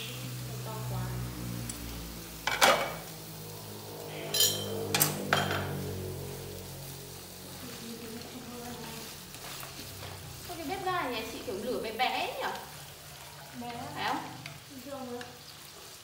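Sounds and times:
pot lid and cookware clinking: 4.3 - 5.6.

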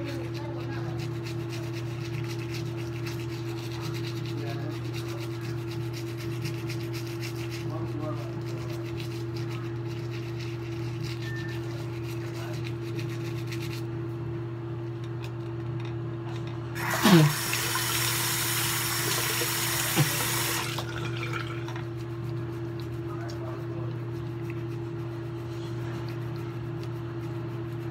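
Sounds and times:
electric toothbrush humming: 0.0 - 14.1, 16.8 - 27.9
tap running into sink: 16.8 - 21.8.

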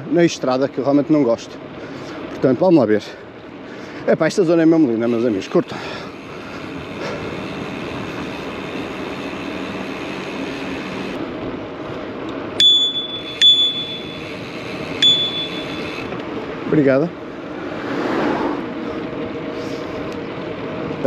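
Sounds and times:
rushing noise of moving bike: 0.0 - 21.0
bicycle bell ringing: 12.6 - 16.1.

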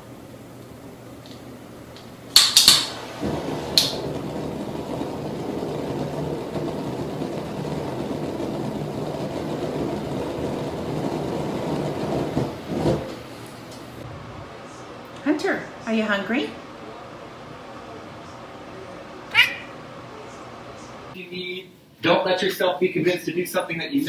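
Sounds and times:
flame rushing: 0.0 - 14.9.

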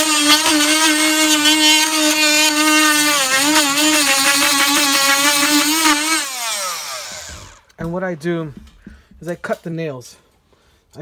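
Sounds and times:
oscillating multi-tool whine: 0.0 - 7.7.

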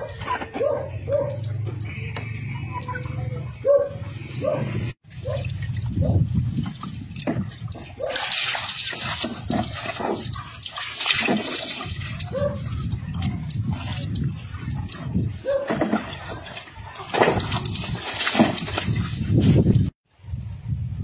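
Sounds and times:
water splashing onto ground: 5.0 - 19.7.

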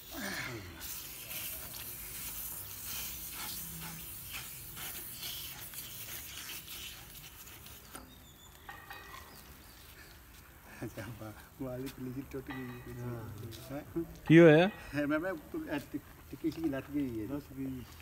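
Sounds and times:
pipe fitting scraping and rubbing: 0.8 - 9.3.

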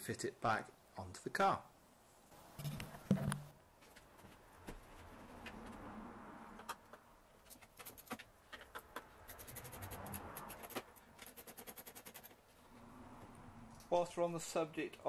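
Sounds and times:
hand tool ratcheting ticks: 7.8 - 12.4.

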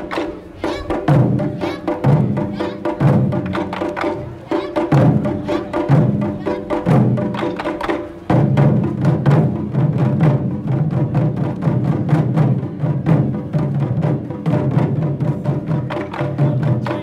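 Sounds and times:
deep drum beats: 0.0 - 17.0.

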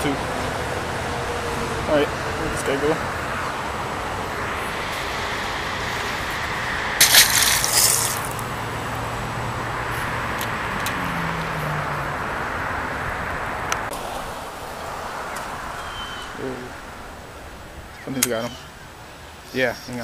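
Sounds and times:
fish splashing into water: 7.0 - 8.6.

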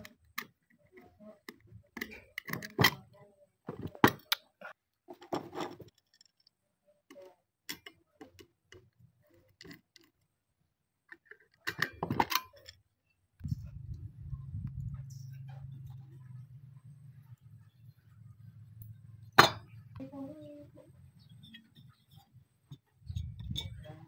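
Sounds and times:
metal discs clicking and scraping: 0.0 - 3.2, 5.1 - 10.4, 11.1 - 12.9, 21.2 - 24.0.

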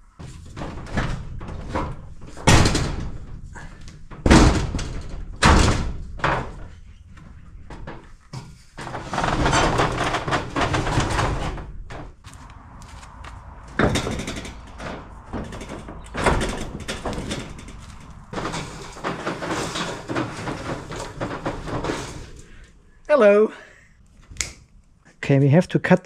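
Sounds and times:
metal roller door rattling: 0.0 - 23.0
sharp knocks: 13.1 - 22.6.

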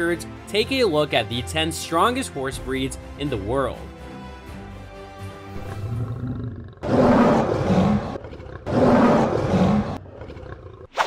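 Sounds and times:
lion roaring: 5.6 - 10.9.

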